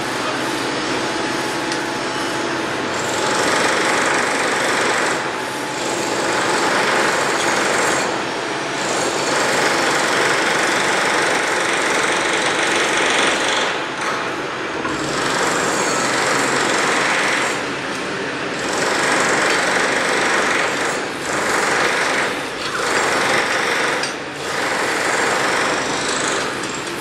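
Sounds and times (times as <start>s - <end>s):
power tool hammering rapidly: 2.9s - 13.8s, 14.8s - 17.7s, 18.5s - 27.0s.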